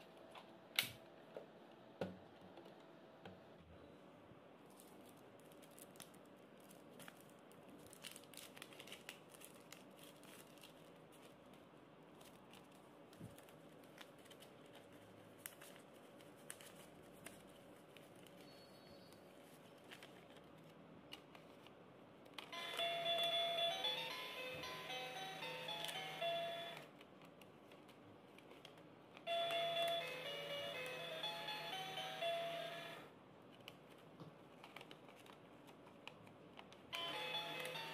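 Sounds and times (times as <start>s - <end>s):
paper notes rustling: 6.7s - 18.7s, 19.3s - 21.8s.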